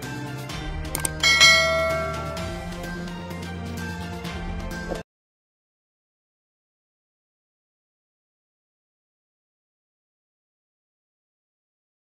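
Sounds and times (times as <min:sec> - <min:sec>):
jingle music: 0:01.0 - 0:04.6.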